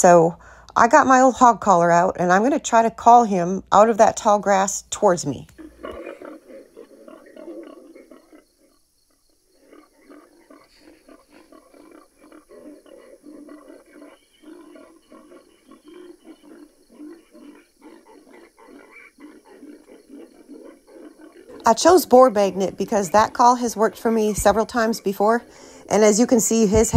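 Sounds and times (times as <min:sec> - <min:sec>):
recorded boar grunting: 0:05.6 - 0:26.9.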